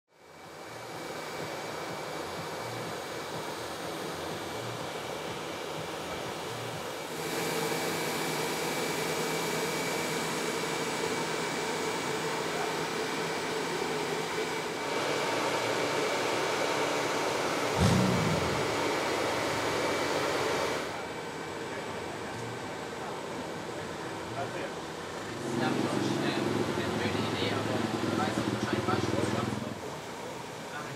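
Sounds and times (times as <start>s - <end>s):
mechanical whirring hum: 0.1s - 30.9s
low thump: 17.8s - 19.0s.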